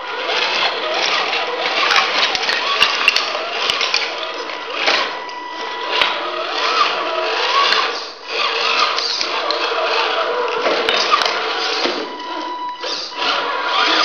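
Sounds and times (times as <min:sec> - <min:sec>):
toy truck motor whirring: 0:00.0 - 0:14.0
tyres clicking on rubble: 0:00.4 - 0:05.3.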